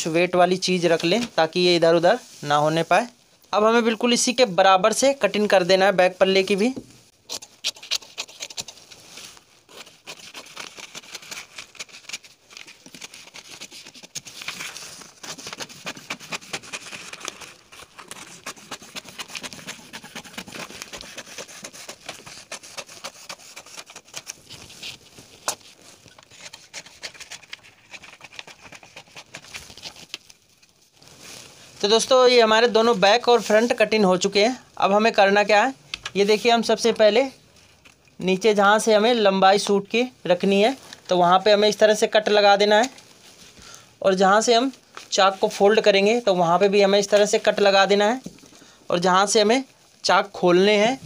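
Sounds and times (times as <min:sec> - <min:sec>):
paper rustling: 0:06.3 - 0:34.0
scissors snipping paper: 0:07.3 - 0:08.9, 0:09.7 - 0:30.2.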